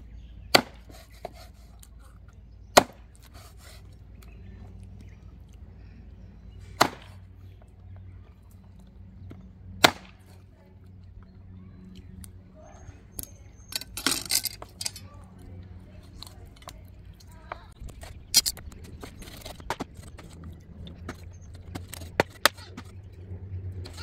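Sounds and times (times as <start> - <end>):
steady low hum: 0.0 - 24.0
cleaver chopping on wooden board: 0.5 - 1.5, 2.7 - 3.5, 6.8 - 7.2, 9.8 - 10.2.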